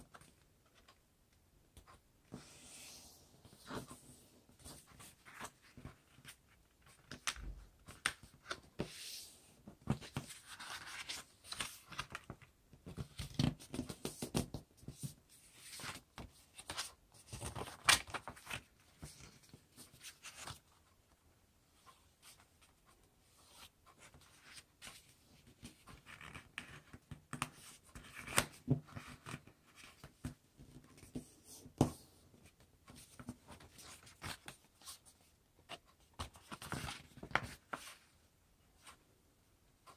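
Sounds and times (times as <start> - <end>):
paper being folded and creased: 9.9 - 14.4, 15.4 - 20.6, 35.7 - 38.1.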